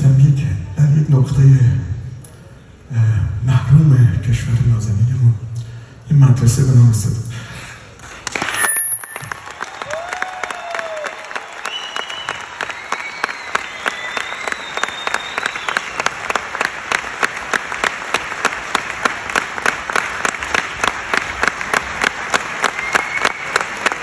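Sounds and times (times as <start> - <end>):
audience clapping in rhythm: 8.0 - 24.0.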